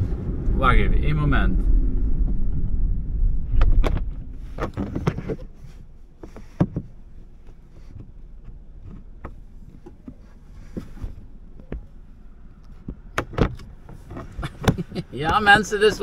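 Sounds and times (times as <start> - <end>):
car road and engine rumble: 0.0 - 16.0
clicks and knocks in car: 6.2 - 11.9, 12.8 - 15.4.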